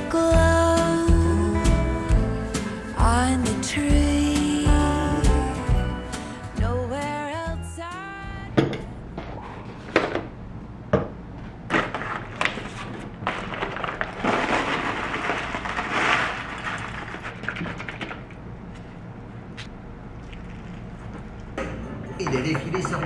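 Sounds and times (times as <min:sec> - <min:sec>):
paper bag crinkling: 0:12.0 - 0:18.2
granola pouring into bowl: 0:13.2 - 0:18.2.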